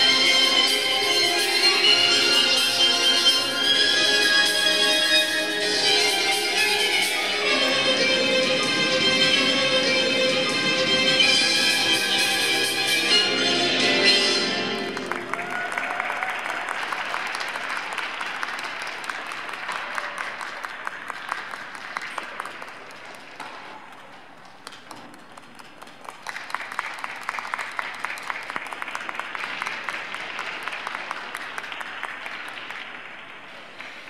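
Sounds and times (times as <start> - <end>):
audience applauding: 14.8 - 34.0.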